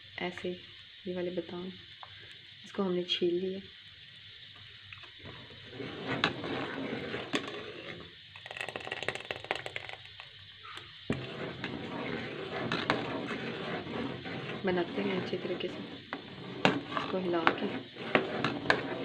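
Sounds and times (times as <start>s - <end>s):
metal ladle scraping a pot: 5.2s - 10.0s, 10.6s - 19.0s.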